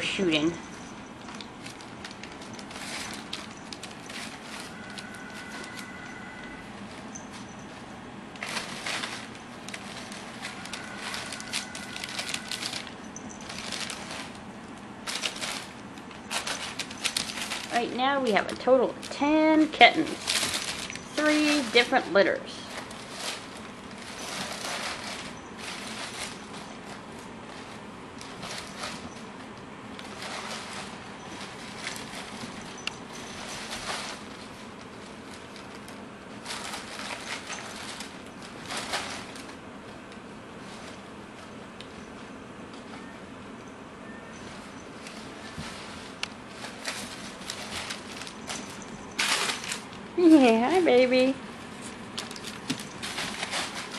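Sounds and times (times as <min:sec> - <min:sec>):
packing paper rustling and crinkling: 0:00.0 - 0:43.5, 0:44.1 - 0:53.9.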